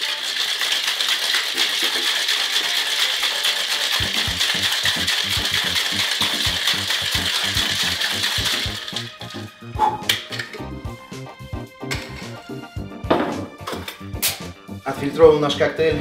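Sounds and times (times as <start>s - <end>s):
ice rattling in metal shaker: 0.0s - 10.7s
music with steady beat: 4.0s - 16.0s.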